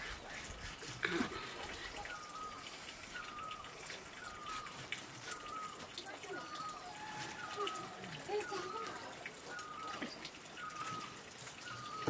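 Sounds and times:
bird chirping: 1.8s - 12.0s.

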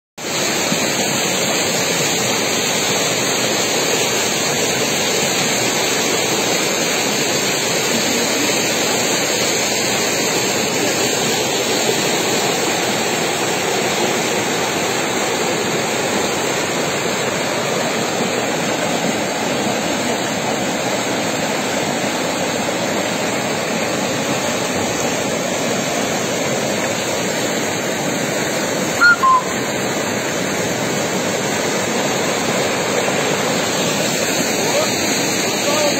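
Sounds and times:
floodwater rushing: 0.2s - 35.9s
two-tone beep: 29.0s - 29.6s.

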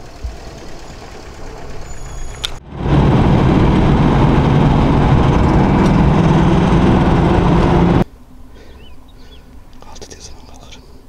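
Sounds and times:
vehicle engine and road noise: 0.0s - 8.4s.

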